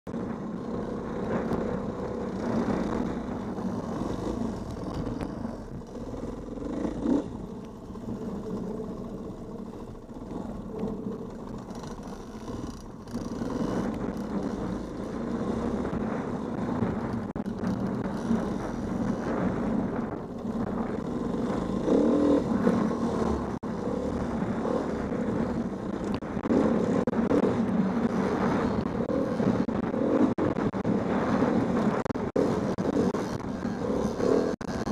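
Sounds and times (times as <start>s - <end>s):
dirt bike engine revving: 0.6s - 10.8s, 20.6s - 34.9s.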